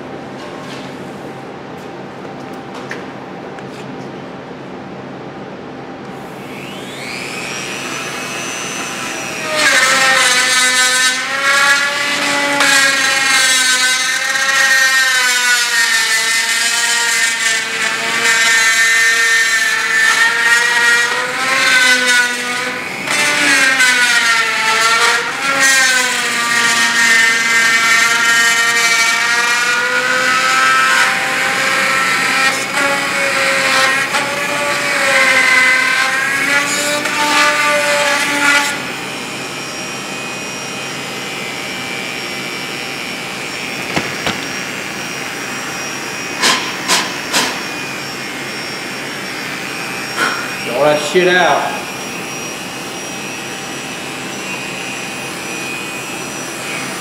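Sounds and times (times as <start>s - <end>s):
rotary tool whining: 6.2s - 50.9s.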